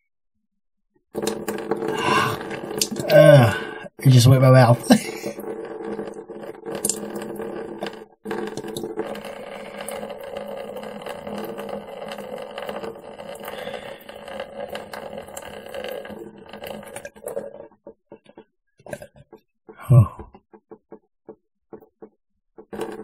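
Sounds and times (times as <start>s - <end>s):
water gurgling through nose: 19.7s - 20.4s.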